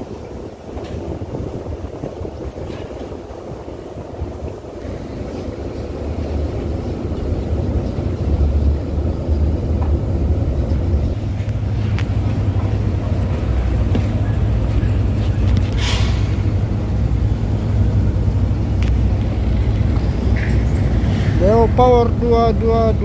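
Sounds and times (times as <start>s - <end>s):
boat engine low rumble: 0.0s - 23.0s
wind buffeting microphone: 0.0s - 23.0s.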